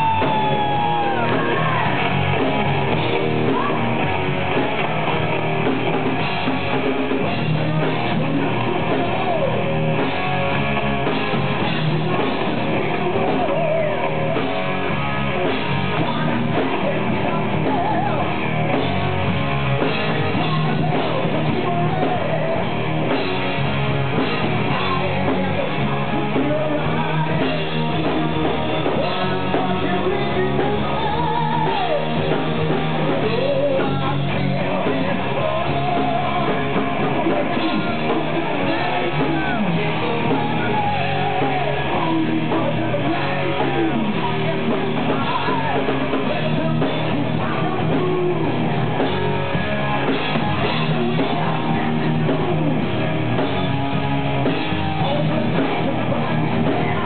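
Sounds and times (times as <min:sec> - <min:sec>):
person singing: 0:00.0 - 0:04.1, 0:11.8 - 0:19.0, 0:20.1 - 0:22.8, 0:24.5 - 0:49.5, 0:54.4 - 0:57.0
drum kit: 0:00.0 - 0:57.0
electric guitars: 0:00.0 - 0:57.0.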